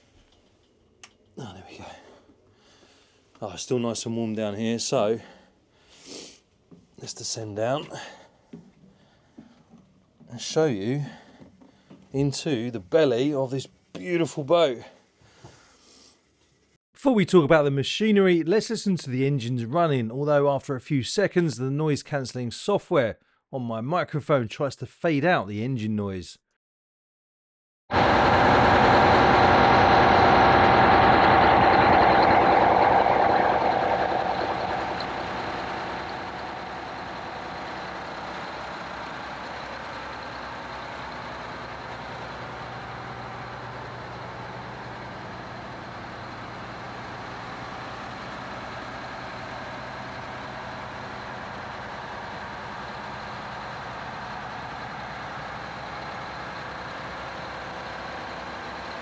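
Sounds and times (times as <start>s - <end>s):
marine diesel engines running: 27.9s - 59.0s.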